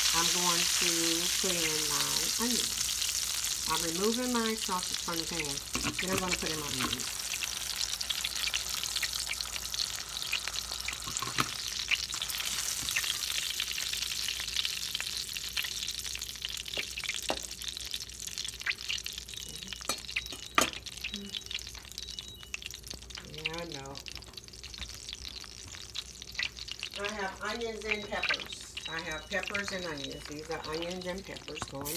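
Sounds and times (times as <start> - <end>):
grease sizzling in frying pan: 0.0 - 31.9.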